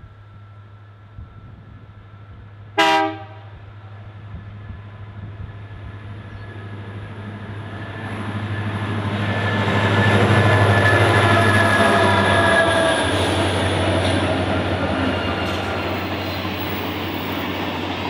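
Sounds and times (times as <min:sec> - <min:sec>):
diesel locomotive engines droning: 0:00.0 - 0:18.0
train wheels rumbling on rails: 0:00.0 - 0:18.0.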